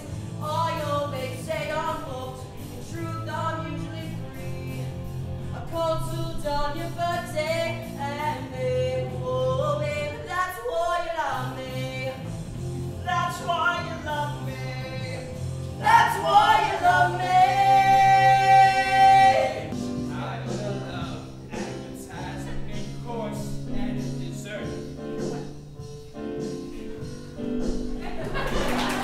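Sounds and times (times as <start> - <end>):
quiet music with steady beat: 0.0 - 29.0
instrumental accompaniment: 11.2 - 29.0.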